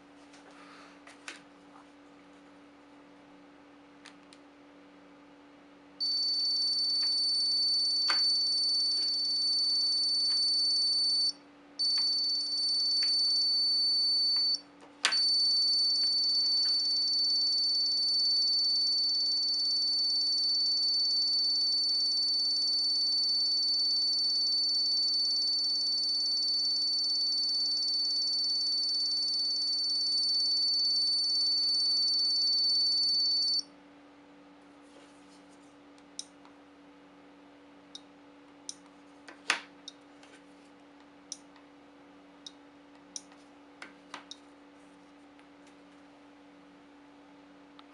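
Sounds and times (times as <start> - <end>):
high-pitched buzzer tone: 6.0 - 33.7.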